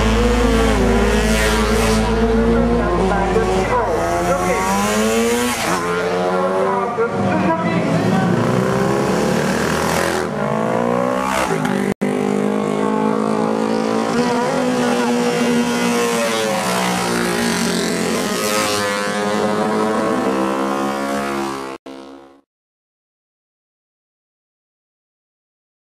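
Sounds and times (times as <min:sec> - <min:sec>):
racing motorcycles at high revs: 0:00.0 - 0:22.4.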